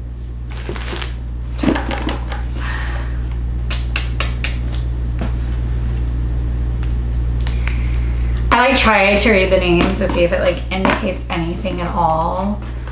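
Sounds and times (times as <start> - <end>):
steady low hum: 0.0 - 12.9
packaging crinkling and clicking: 0.5 - 1.2.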